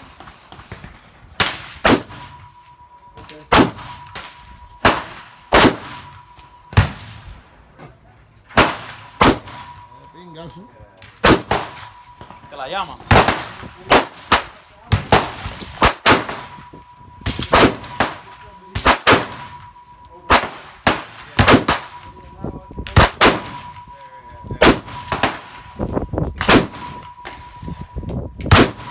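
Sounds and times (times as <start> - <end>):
loud gunshots: 1.4 - 2.4, 3.5 - 7.2, 8.5 - 9.9, 11.2 - 12.0, 13.0 - 19.6, 20.3 - 22.0, 22.8 - 23.9, 24.6 - 25.8, 26.4 - 27.6, 28.5 - 28.9.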